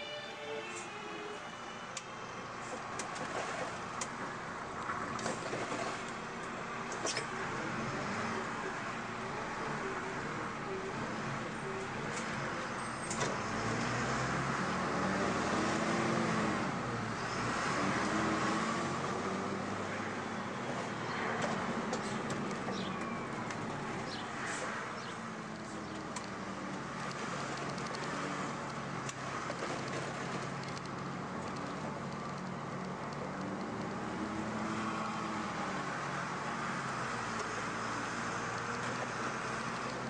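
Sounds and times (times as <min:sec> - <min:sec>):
bus diesel engine running: 0:00.0 - 0:14.2
tyre and road noise: 0:00.0 - 0:40.0.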